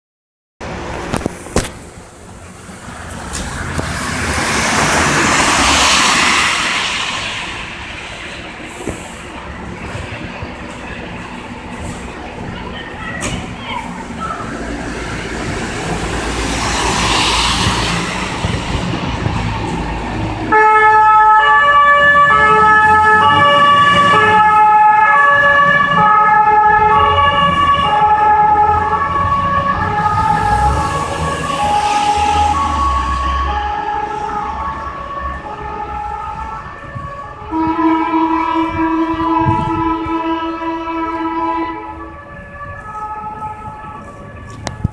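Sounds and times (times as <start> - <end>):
truck engine rumble: 0.6 - 44.9
car tyres hissing on wet road: 3.5 - 9.4, 16.2 - 18.4
two-tone fire engine siren: 3.6 - 8.2, 14.1 - 44.9.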